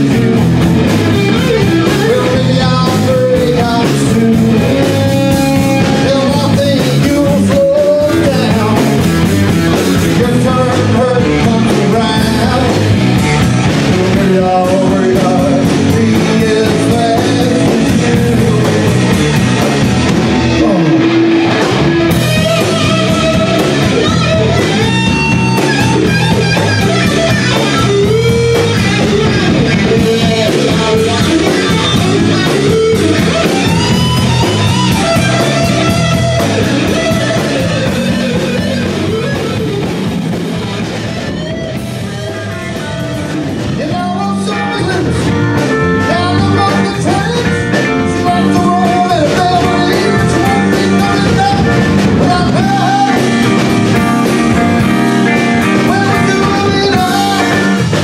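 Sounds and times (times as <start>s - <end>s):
person singing: 0.0s - 39.6s, 41.8s - 58.0s
drum kit: 0.0s - 58.0s
electric guitars: 0.0s - 58.0s.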